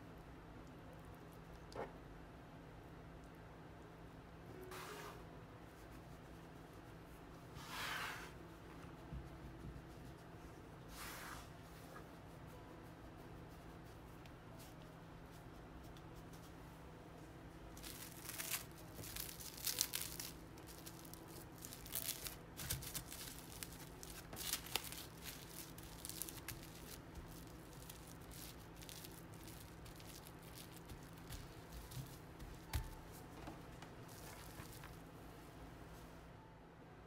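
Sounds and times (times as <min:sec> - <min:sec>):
cling film crinkling: 0:17.7 - 0:35.1.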